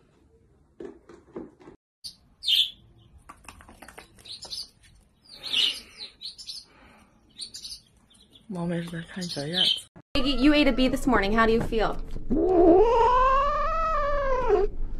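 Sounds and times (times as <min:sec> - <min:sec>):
chick peeping: 0:07.3 - 0:08.4.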